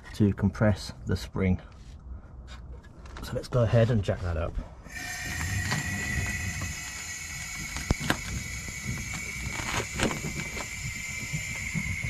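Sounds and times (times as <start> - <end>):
air hissing with whistle: 4.9 - 12.0.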